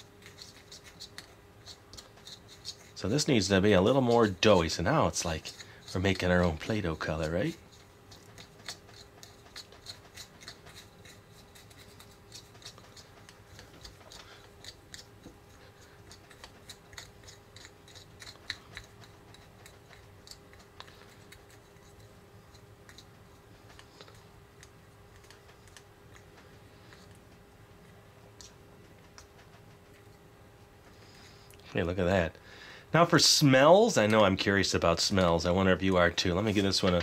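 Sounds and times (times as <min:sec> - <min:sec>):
fingers scratching plastic cup: 0:00.0 - 0:24.2
faint steady hum: 0:00.0 - 0:37.0.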